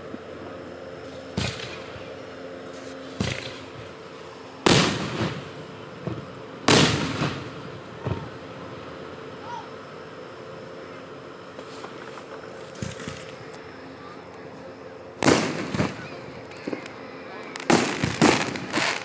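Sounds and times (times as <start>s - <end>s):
fireworks booming: 1.1s - 2.1s, 3.1s - 3.9s, 4.6s - 8.5s, 11.6s - 13.4s, 15.2s - 19.0s.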